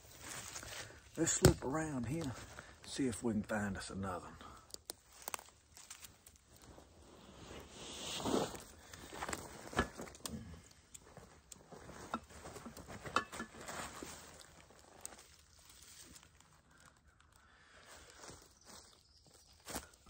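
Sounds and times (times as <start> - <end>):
footsteps crunching through dry leaves: 0.0 - 3.1, 5.0 - 7.4, 11.1 - 20.0.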